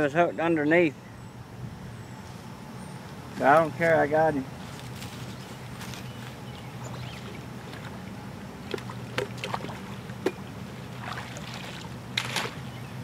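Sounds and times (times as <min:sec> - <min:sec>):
steady low hum: 0:00.0 - 0:13.0
water splashing and sloshing: 0:06.8 - 0:12.6.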